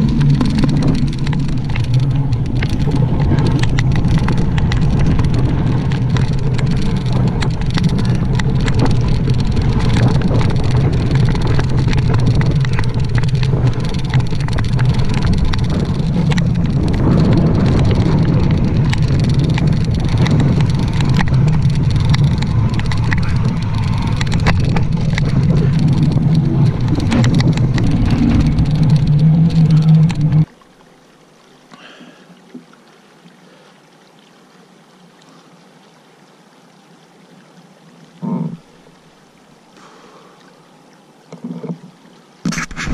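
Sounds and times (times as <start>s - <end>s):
bike clicks and rattles: 0.0s - 30.5s
wind buffeting microphone: 0.0s - 30.5s.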